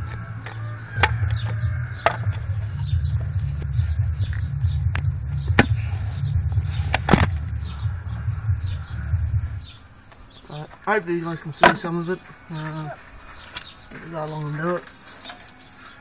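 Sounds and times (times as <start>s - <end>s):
steady low rumble: 0.0s - 11.3s
small birds chirping: 0.0s - 16.0s.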